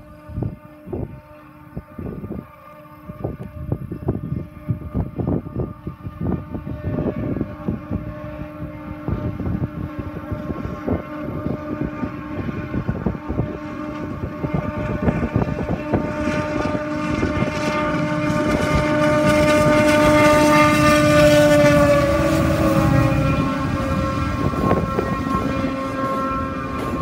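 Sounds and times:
steady horn tones: 0.0s - 27.0s
diesel locomotives passing: 5.7s - 27.0s
train rumble: 7.6s - 27.0s.

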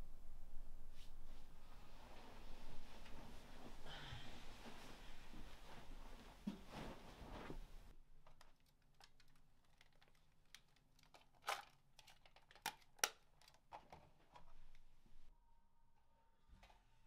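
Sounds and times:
plastic camera rustling: 8.2s - 14.8s
plastic camera clicks: 9.0s - 13.6s.

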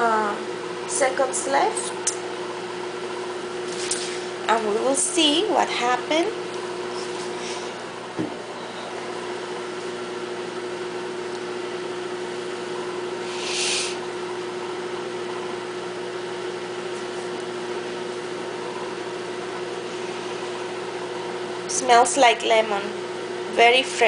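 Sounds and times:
microwave oven humming: 0.0s - 24.0s
brief hiss: 13.2s - 14.0s.

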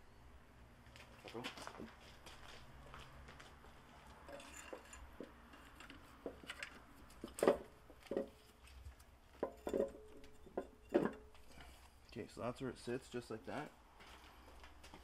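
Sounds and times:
metal knocks and clinks: 4.2s - 8.4s, 9.4s - 11.5s.

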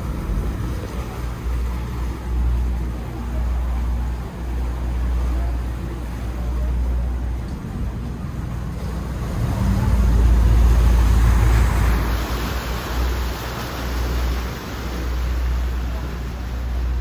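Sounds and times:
ferry engine rumbling: 0.0s - 17.0s
propellers churning water: 0.0s - 17.0s
rushing water: 0.0s - 17.0s.

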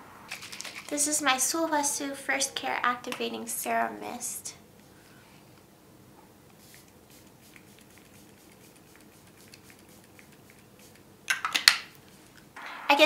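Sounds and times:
spray bottle misting hiss: 6.5s - 11.1s.

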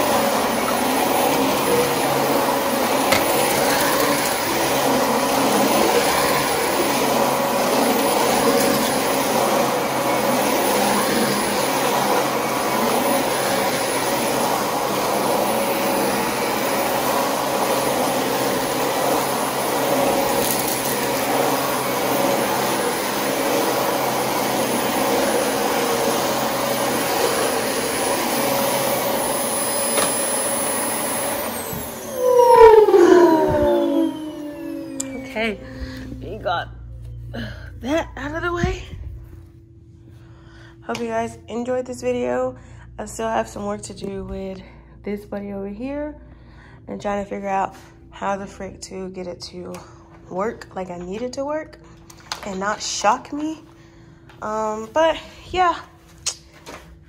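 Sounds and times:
vacuum cleaner motor whining: 0.0s - 36.4s.

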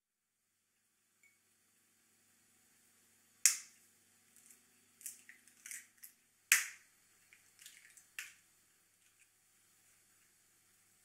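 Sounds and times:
eggshell clicks: 3.4s - 3.7s, 5.0s - 8.4s
egg cracking: 3.4s - 10.4s.

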